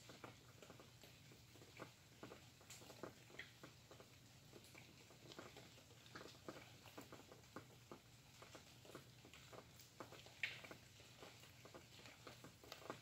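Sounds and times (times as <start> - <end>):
raindrops pattering: 0.0 - 13.0.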